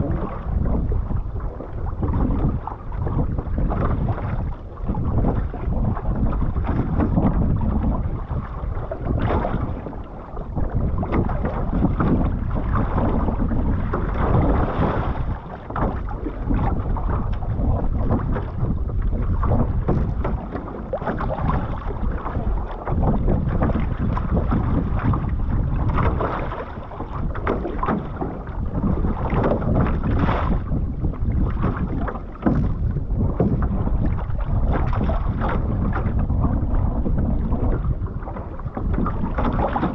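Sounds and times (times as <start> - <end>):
water splashing along canoe hull: 0.0 - 39.9
wind noise on microphone: 0.0 - 39.9.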